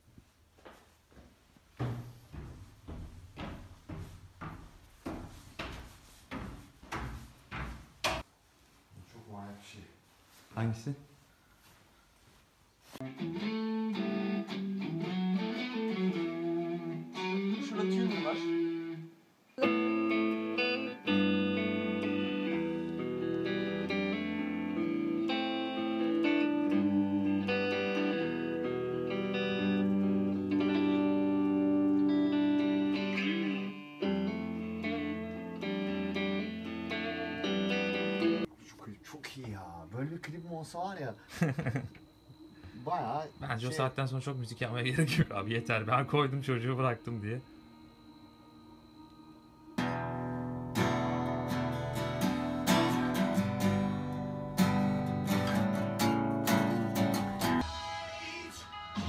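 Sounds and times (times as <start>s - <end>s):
electric guitar chords and notes: 13.0s - 38.5s, 48.1s - 57.8s.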